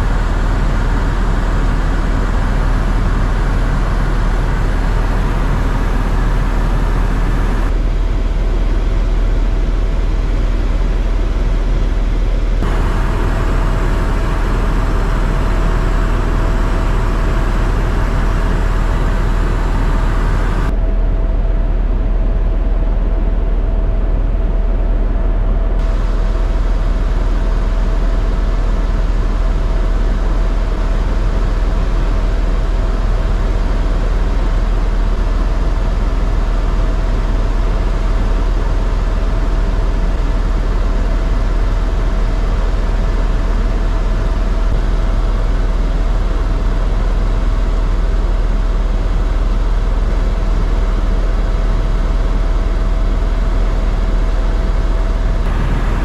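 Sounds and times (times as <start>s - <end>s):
helicopter engine and rotor: 0.0s - 10.3s, 12.4s - 20.7s, 25.8s - 56.0s
high hiss: 55.5s - 56.0s.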